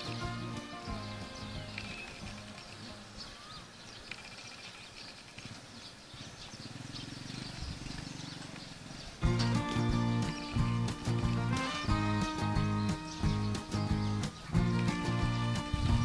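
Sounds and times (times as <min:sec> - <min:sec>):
background music: 0:00.0 - 0:03.4, 0:09.2 - 0:16.0
quiet outdoor ambience: 0:00.0 - 0:16.0
small birds chirping: 0:00.0 - 0:16.0.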